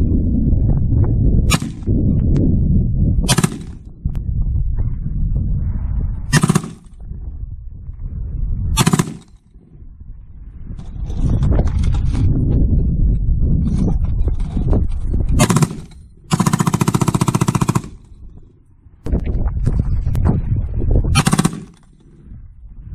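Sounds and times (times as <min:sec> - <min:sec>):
low rumble: 0:00.0 - 0:22.9
machine gun firing sharp reports: 0:01.5 - 0:01.9, 0:03.3 - 0:03.9, 0:06.3 - 0:07.0, 0:08.8 - 0:09.4, 0:15.4 - 0:18.2, 0:21.2 - 0:22.2.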